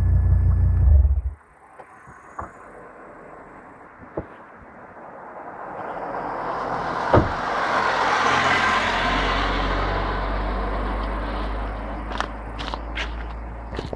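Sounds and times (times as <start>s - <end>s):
low steady rumble: 0.0s - 1.4s
vehicle passing rush: 1.4s - 13.9s.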